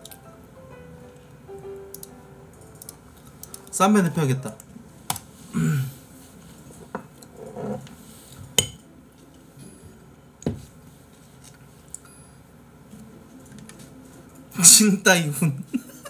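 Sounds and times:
dishes and cutlery clinking: 6.7 - 8.8.

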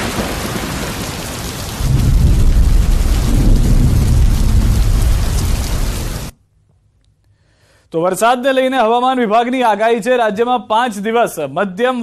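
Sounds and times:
heavy rain hissing: 0.0 - 6.3
thunder rumbling: 0.0 - 6.3.

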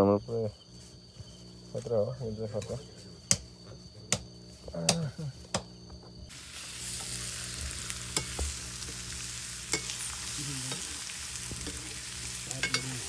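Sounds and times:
food sizzling in a wok: 6.3 - 13.0.

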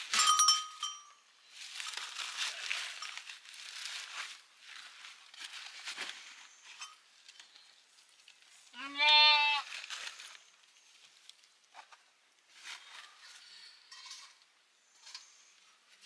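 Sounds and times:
rustling of cloth and bags: 0.0 - 8.7, 9.6 - 13.4
sheep bleating: 8.7 - 9.7.

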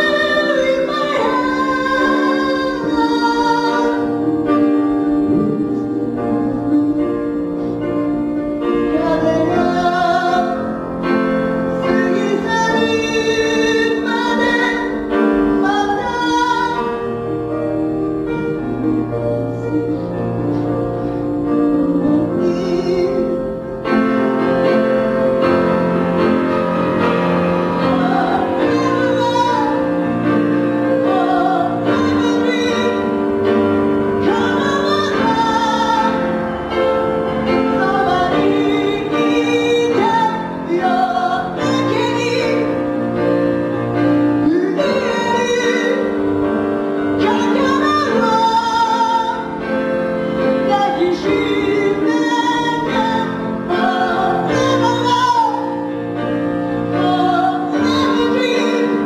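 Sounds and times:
person singing: 0.0 - 10.7, 18.2 - 24.1, 34.2 - 42.9
sustained music accompaniment: 0.0 - 59.0.

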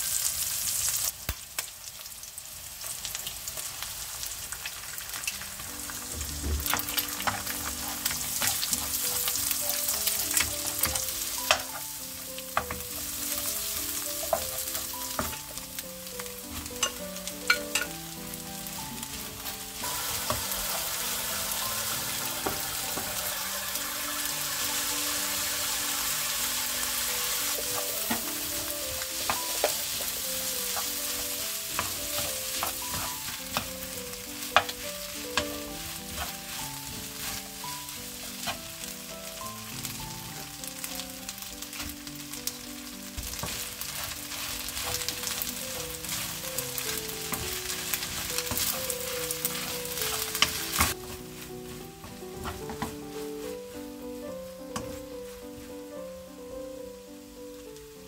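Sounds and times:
rice sizzling in a wok: 0.0 - 58.0
wooden spatula scraping a pan: 6.0 - 15.6, 18.6 - 39.4, 41.3 - 56.0
spatula tapping a pan: 27.5 - 38.8, 43.2 - 51.2.

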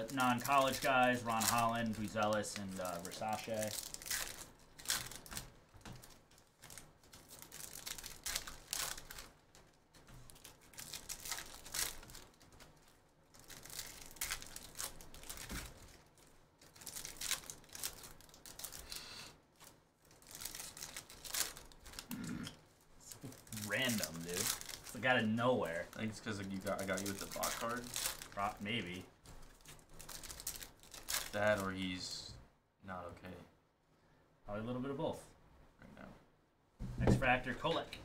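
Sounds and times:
wrappers crinkling and tearing: 0.0 - 31.9
cards being handled: 23.1 - 31.6.

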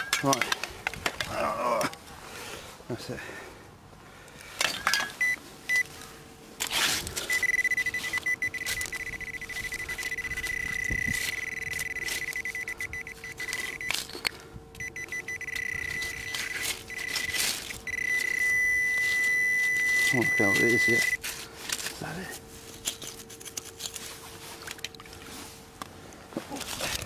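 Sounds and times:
metal detector high beep: 4.8 - 5.9, 7.3 - 14.1, 14.8 - 21.2.

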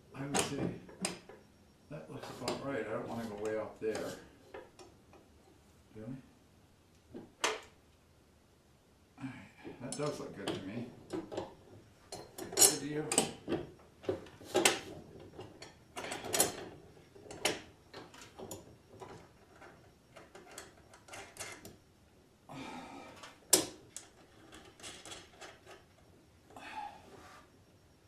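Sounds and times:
metal clicks and clanks: 9.9 - 21.8, 23.2 - 26.0.

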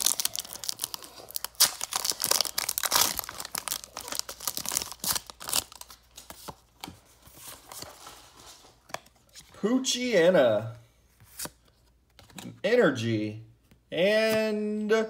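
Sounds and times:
foil wrapper tearing and crinkling: 0.0 - 6.0.

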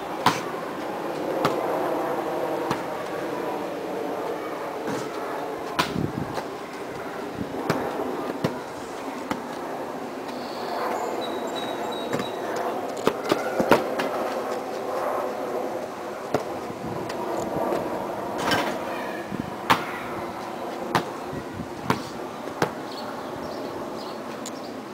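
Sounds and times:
steady background noise: 0.0 - 24.9
basketball bouncing on dirt: 1.4 - 1.7, 2.6 - 2.9, 7.6 - 8.6, 12.1 - 12.4, 16.3 - 16.5.

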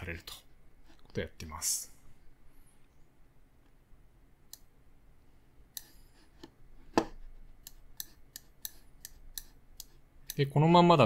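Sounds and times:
computer mouse clicking: 7.6 - 10.4.

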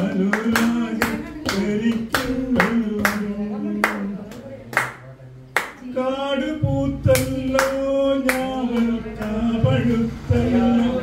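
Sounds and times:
man singing into microphone: 0.0 - 4.2, 5.8 - 11.0
hand claps: 0.1 - 5.0, 5.6 - 5.8, 7.1 - 9.5.

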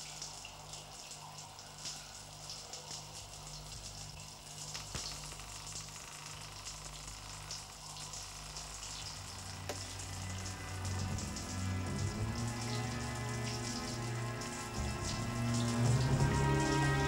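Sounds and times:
shower running: 0.0 - 17.0
low music drone: 9.5 - 17.0.

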